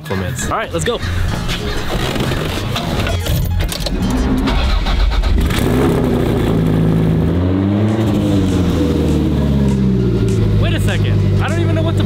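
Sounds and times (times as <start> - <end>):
sports car engine starting and revving: 3.9 - 12.0.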